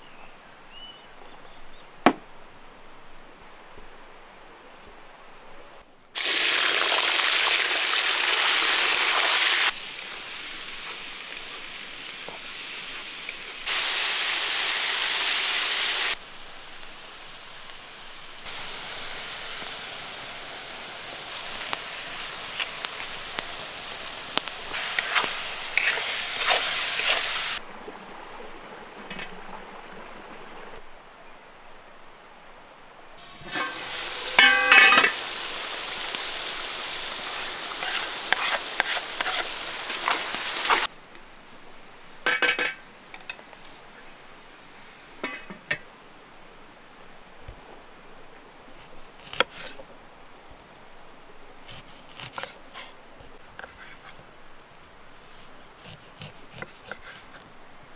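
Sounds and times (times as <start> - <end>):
meat sizzling in a pot: 6.2 - 27.6, 33.2 - 40.9
utensil scraping metal pot: 24.8 - 27.6, 33.4 - 35.2, 37.7 - 40.9
ringing metal clanks: 34.4 - 35.1.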